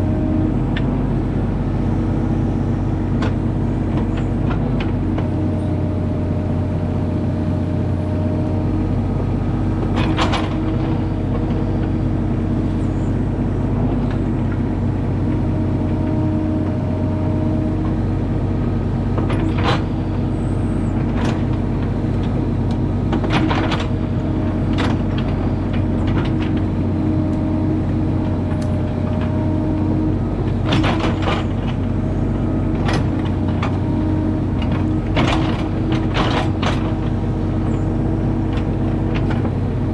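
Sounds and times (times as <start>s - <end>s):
diesel engine running: 0.0s - 39.9s
hydraulic whine: 0.0s - 39.9s
excavator bucket clanks: 9.8s - 11.1s, 23.1s - 26.8s, 30.4s - 37.8s.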